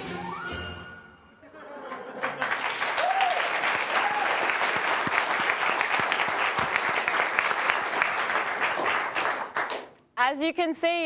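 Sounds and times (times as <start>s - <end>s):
audience applauding: 1.9s - 10.0s
person whooping: 3.0s - 4.5s.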